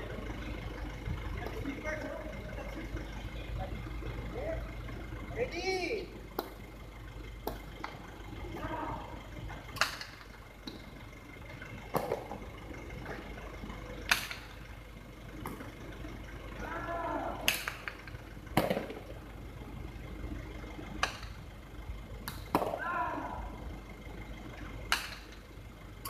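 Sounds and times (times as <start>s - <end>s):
ball cracking against wall: 9.7s - 10.8s, 14.1s - 14.5s, 17.4s - 19.2s, 22.2s - 22.8s, 24.9s - 25.4s.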